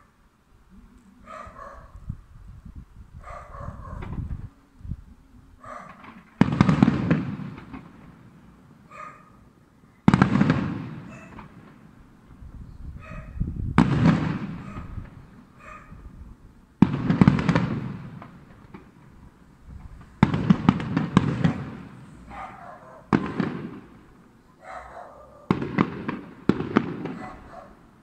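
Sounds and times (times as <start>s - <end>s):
firework shells booming: 5.8s - 8.9s, 10.0s - 12.4s, 13.7s - 15.4s, 16.8s - 24.3s, 25.4s - 28.0s
firework crackling: 5.9s - 8.9s, 10.1s - 12.3s, 13.7s - 15.4s, 16.8s - 24.3s, 25.4s - 28.0s.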